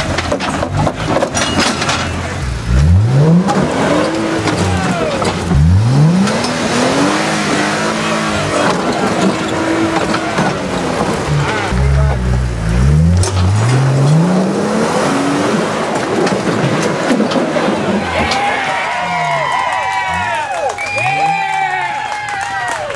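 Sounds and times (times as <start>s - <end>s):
engine revving hard: 2.5s - 16.3s.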